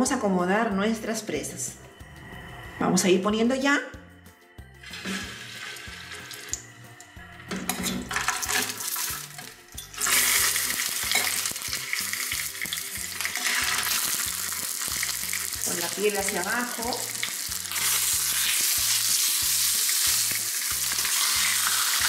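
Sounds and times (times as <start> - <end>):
chicken sizzling in hot oil: 4.8 - 6.6, 8.1 - 22.0.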